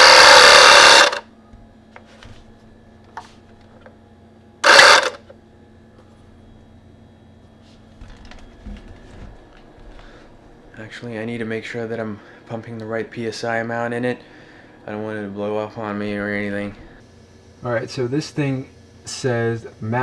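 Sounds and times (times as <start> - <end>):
air compressor rushing bursts: 0.0 - 1.2
faint steady hum: 0.0 - 20.0.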